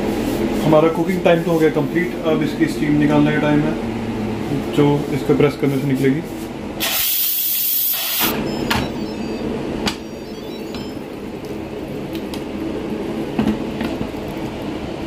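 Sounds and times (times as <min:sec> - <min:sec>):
steam hissing from valve: 0:06.8 - 0:08.3.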